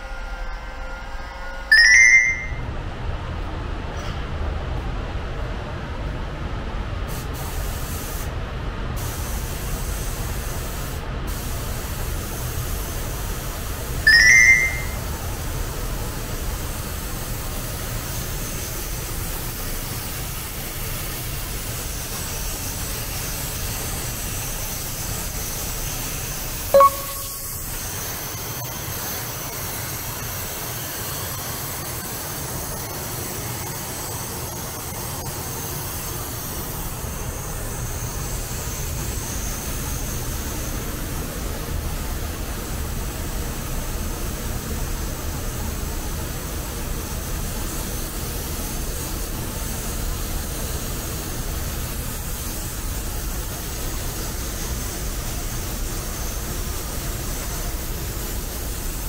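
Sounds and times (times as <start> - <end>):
brief tone: 0.0 - 2.7, 14.1 - 15.1, 26.8 - 27.8
high-pitched chirp: 1.7 - 2.7, 14.1 - 15.0, 26.8 - 27.7
paint spray gun hissing: 16.6 - 34.4, 46.6 - 59.0.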